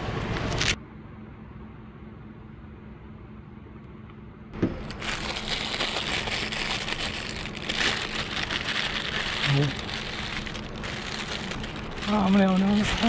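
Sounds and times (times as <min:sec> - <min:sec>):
faint steady hum: 0:00.0 - 0:13.0
plastic bag crinkling: 0:04.8 - 0:13.0.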